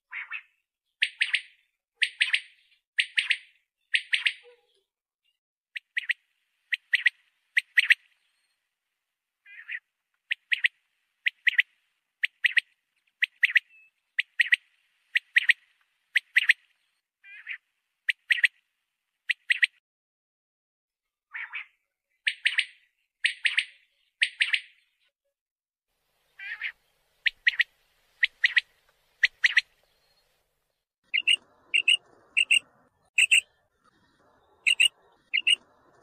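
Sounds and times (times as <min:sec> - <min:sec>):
quail calling: 0:09.5 - 0:10.7, 0:26.4 - 0:29.7, 0:31.1 - 0:36.0.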